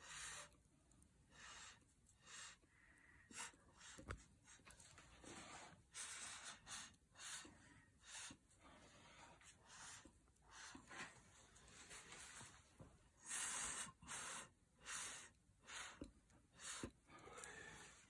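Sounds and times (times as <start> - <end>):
breath puffs through a straw: 13.2 - 18.0.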